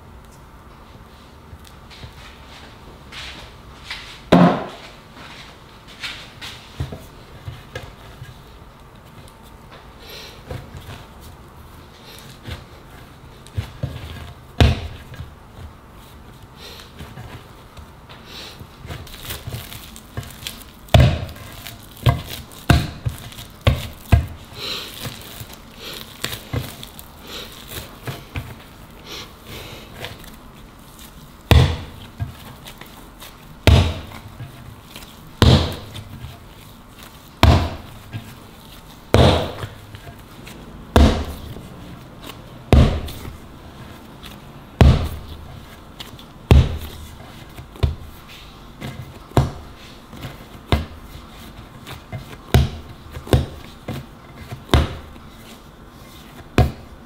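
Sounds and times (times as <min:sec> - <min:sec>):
dough pressing and rubbing: 0:00.9 - 0:57.0
dough slapping on marble: 0:12.2 - 0:29.0, 0:29.9 - 0:57.0.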